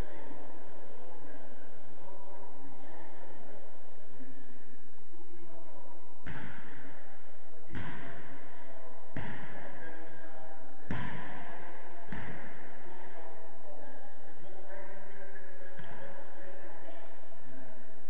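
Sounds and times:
ball bouncing on hall floor: 6.2s - 10.2s, 10.8s - 13.2s, 15.6s - 16.1s.

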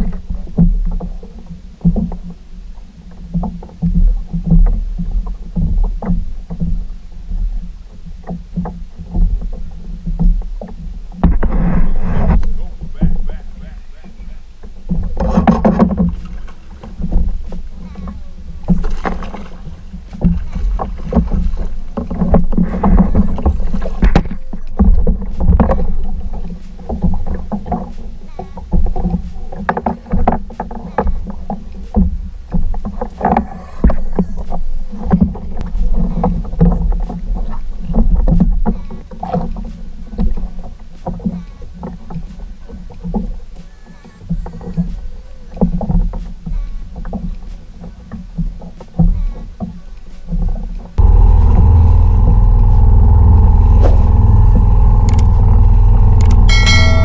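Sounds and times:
water splashing against hull: 0.0s - 57.0s
outboard motor running: 10.5s - 31.9s, 51.0s - 57.0s.

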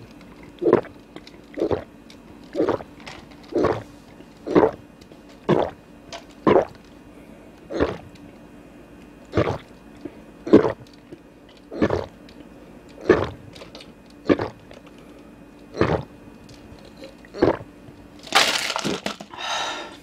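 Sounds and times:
person gulping drink: 0.4s - 1.9s, 2.5s - 3.8s, 4.4s - 4.8s, 5.4s - 5.8s, 6.4s - 6.8s, 7.7s - 8.1s, 9.3s - 9.7s, 10.5s - 10.9s, 11.5s - 12.2s, 13.0s - 13.4s, 14.2s - 14.6s, 15.7s - 16.1s, 17.2s - 17.7s.

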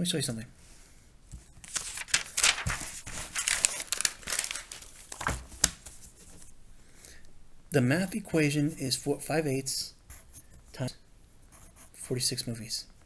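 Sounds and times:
paper rustling and crinkling: 1.3s - 6.5s.

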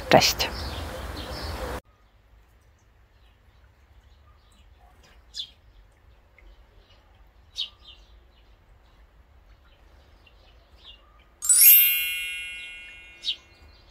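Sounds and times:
small birds chirping: 3.0s - 13.9s
bright bell chime: 11.4s - 13.6s.

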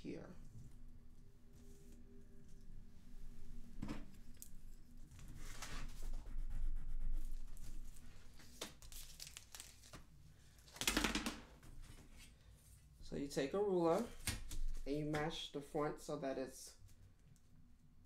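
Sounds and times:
paper rustling and crinkling: 5.0s - 6.2s, 7.4s - 11.0s.

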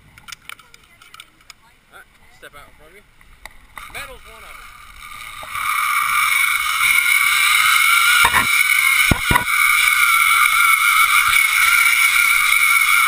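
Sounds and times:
zip line pulley whirring: 3.7s - 13.0s
sharp knocks: 8.2s - 9.5s.

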